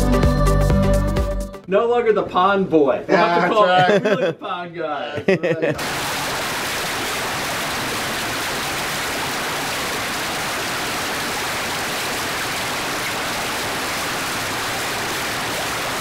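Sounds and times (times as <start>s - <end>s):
fountain water splashing into pond: 5.8s - 16.0s.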